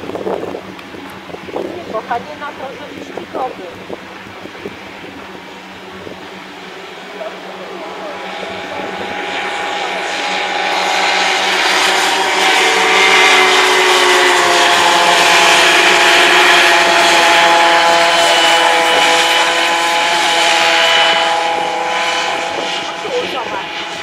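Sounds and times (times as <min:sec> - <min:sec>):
racing kart engines whining: 0:00.7 - 0:24.0.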